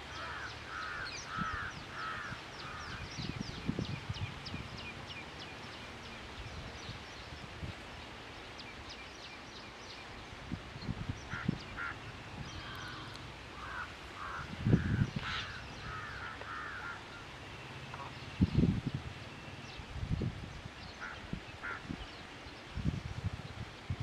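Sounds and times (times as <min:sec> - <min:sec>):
bird calling: 0:00.0 - 0:03.2, 0:11.2 - 0:18.4, 0:20.8 - 0:22.3.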